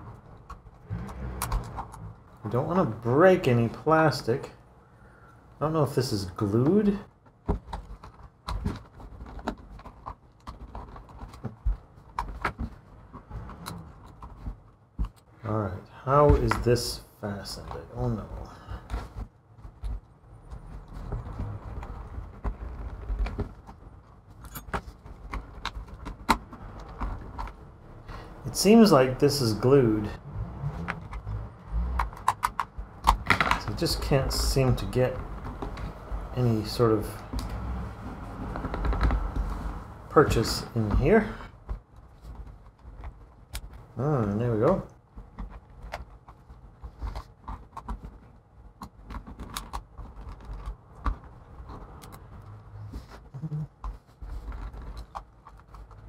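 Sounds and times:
plastic case clicking and creaking: 0.0 - 2.5, 6.6 - 15.3, 17.4 - 28.2, 30.1 - 52.6, 53.2 - 56.0.

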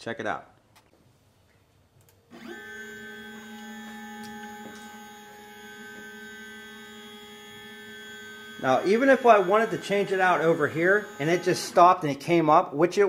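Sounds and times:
stepper motors whining: 2.3 - 12.1.

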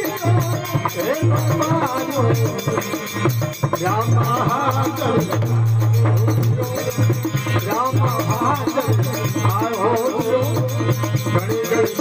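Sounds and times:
hand drum beat: 0.0 - 12.0
harmonium: 0.0 - 12.0
man singing into a microphone: 0.0 - 12.0.

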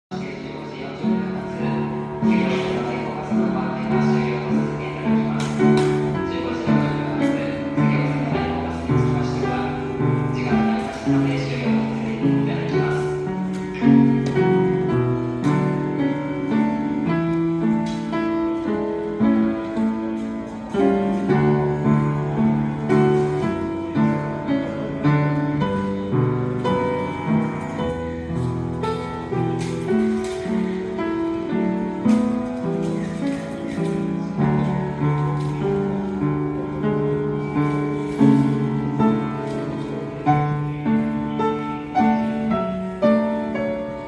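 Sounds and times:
upright piano playing: 0.1 - 44.0.

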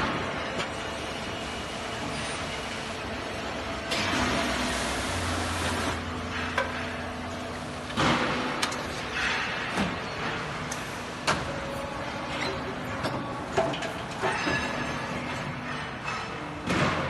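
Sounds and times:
rolling machine noise: 0.0 - 17.0
metallic knocks and clanks: 6.3 - 7.3, 12.3 - 17.0.

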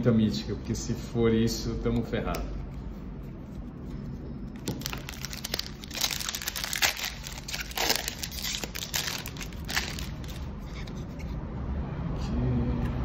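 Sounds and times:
foil wrapper crinkling and tearing: 4.6 - 10.5.

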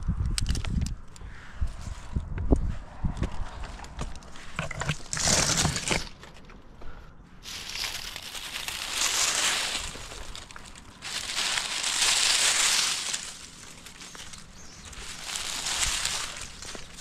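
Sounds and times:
rustling crinkling: 7.4 - 17.0.

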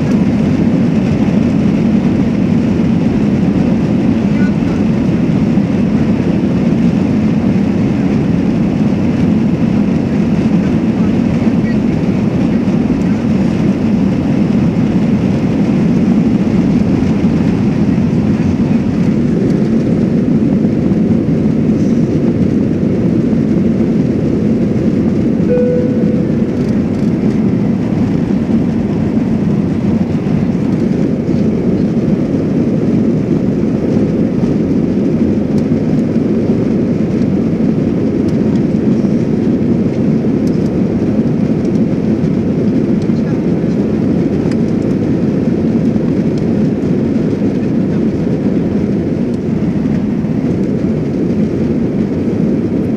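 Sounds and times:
jet engine deep rumble in cabin: 0.0 - 52.9
short tone: 25.5 - 27.0.

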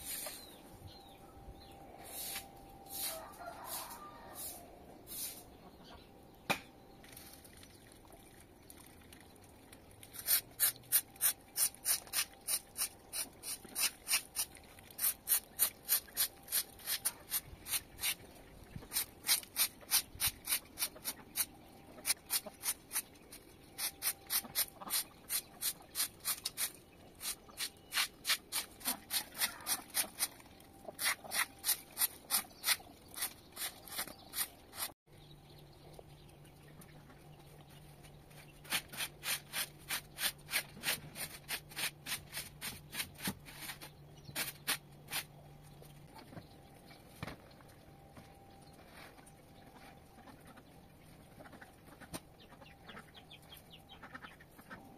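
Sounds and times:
straw broom sweeping: 0.0 - 0.5, 2.0 - 5.5.

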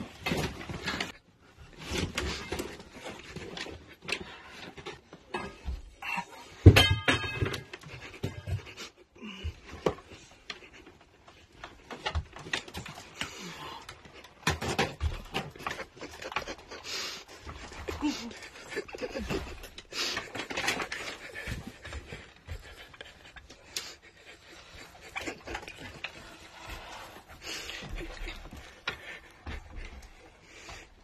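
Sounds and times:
heavy breathing: 7.2 - 31.0.

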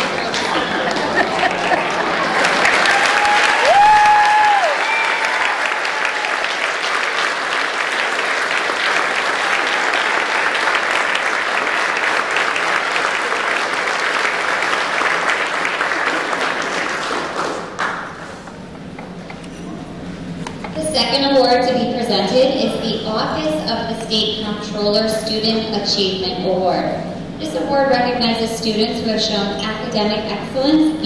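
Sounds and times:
audience applauding: 0.0 - 18.5
person whooping: 2.8 - 6.4.

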